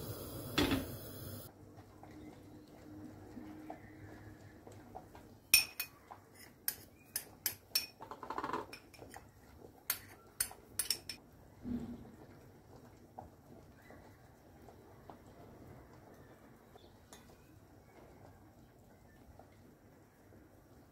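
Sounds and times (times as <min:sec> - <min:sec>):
spoon clinking against ceramic bowl: 0:05.6 - 0:08.0, 0:09.9 - 0:11.2.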